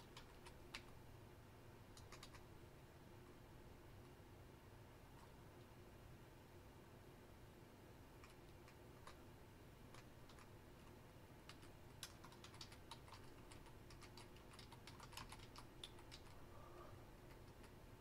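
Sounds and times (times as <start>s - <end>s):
typing on computer keyboard: 0.0s - 0.9s, 1.9s - 2.4s, 8.2s - 9.2s, 9.9s - 10.5s, 11.4s - 16.4s.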